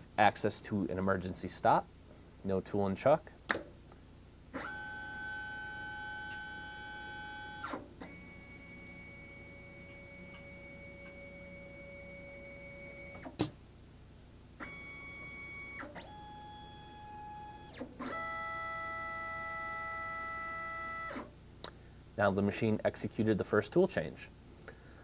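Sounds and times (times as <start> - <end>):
stepper motors whining: 4.6 - 13.3.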